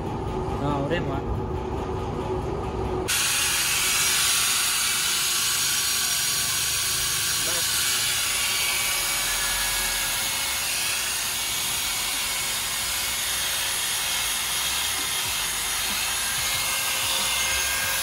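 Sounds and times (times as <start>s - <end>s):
angle grinder polishing metal: 3.1s - 18.0s.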